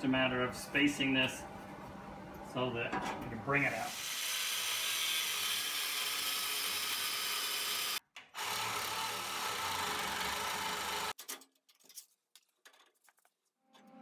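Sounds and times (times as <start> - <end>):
angle grinder cutting steel: 3.9 - 11.2.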